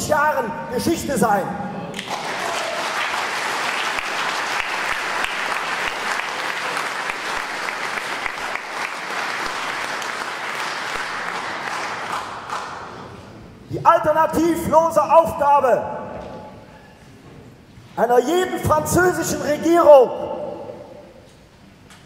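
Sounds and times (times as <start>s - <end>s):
audience applauding: 1.9s - 13.0s.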